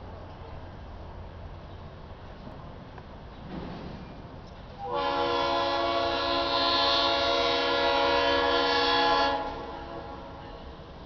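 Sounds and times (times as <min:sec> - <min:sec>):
locomotive horn blast: 0:04.8 - 0:10.8.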